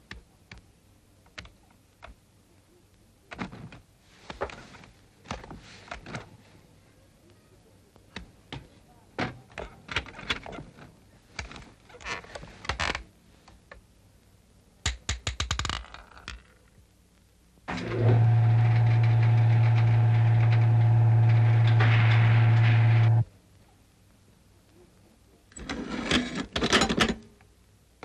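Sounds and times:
loud low mechanical buzz: 17.7s - 23.2s.

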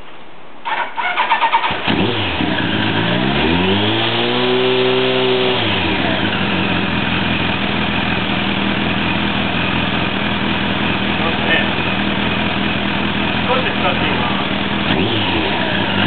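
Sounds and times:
motorcycle starter cranking: 0.7s - 2.9s
motorcycle engine revving and idling: 1.0s - 16.0s.

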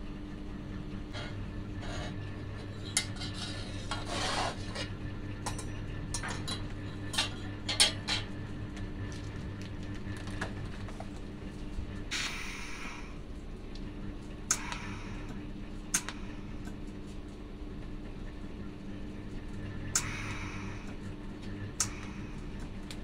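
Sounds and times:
low electrical hum: 0.0s - 23.0s
steel rod scraping: 1.2s - 4.9s.

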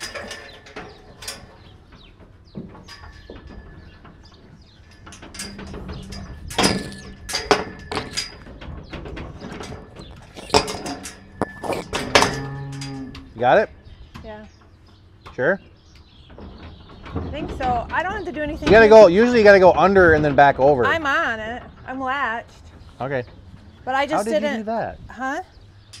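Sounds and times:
metal gate rattling and clanking: 0.0s - 23.8s
loud ringing clanks: 2.8s - 13.8s.

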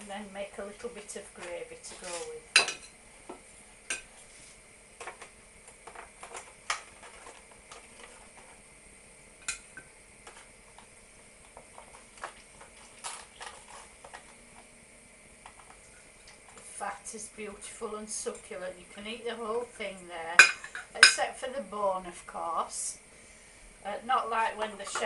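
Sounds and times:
fork scraping foil tray and plates: 1.9s - 2.4s, 13.0s - 14.2s.

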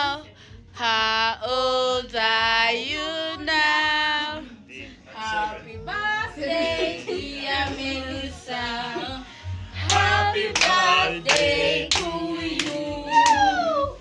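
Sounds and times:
group singing: 0.8s - 14.0s
hand clapping: 9.8s - 13.5s.

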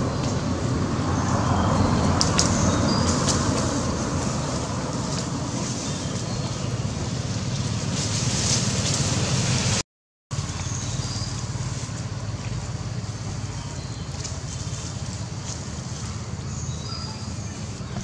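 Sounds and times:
low rumble: 0.0s - 18.0s.

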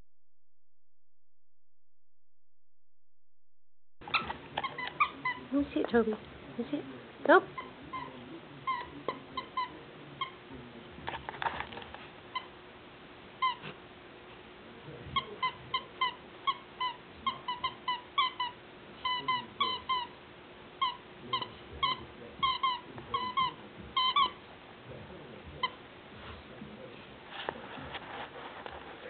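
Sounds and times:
dog toy squeaking: 4.0s - 5.5s, 7.6s - 10.4s, 15.2s - 20.2s, 20.8s - 24.4s.

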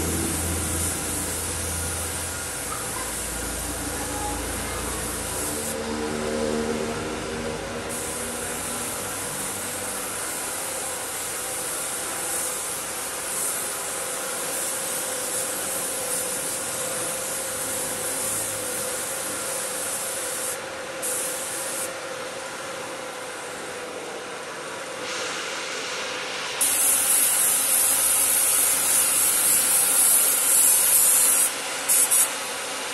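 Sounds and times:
paint spray gun hissing: 0.0s - 5.8s, 7.9s - 21.9s, 26.5s - 32.5s
steady hum: 0.0s - 11.3s.

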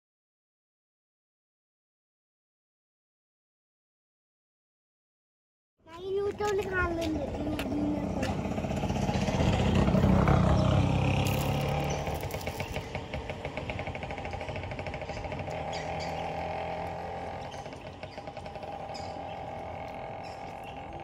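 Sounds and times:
vehicle engine passing by: 6.4s - 21.0s.

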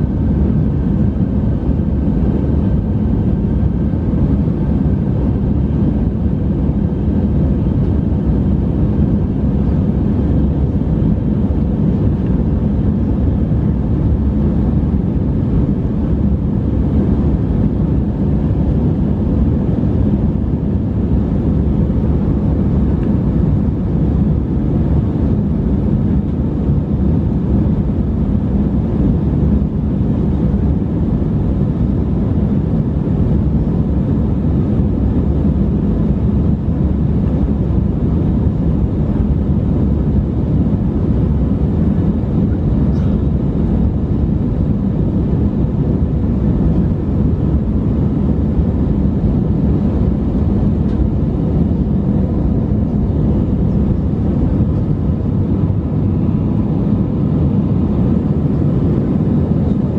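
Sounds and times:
jet engines roaring in cabin: 0.0s - 59.9s.

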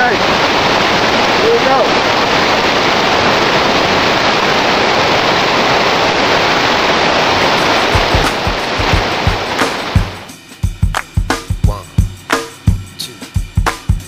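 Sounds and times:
river rapids rushing over rocks: 0.0s - 10.3s
low thumps: 7.8s - 10.3s.

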